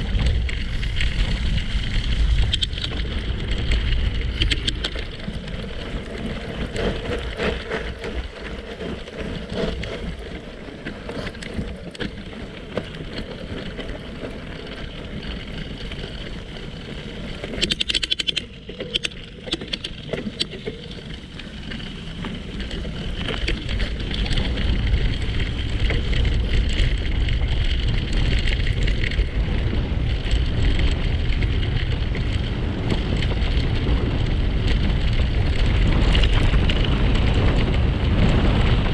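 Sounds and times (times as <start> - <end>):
wind rushing over microphone: 0.0 - 38.9
sharp clicks: 4.3 - 5.1, 17.5 - 20.7.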